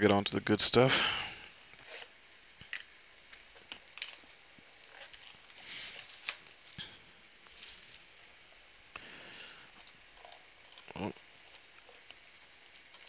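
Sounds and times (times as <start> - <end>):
plastic wrap crinkling: 1.8 - 8.4.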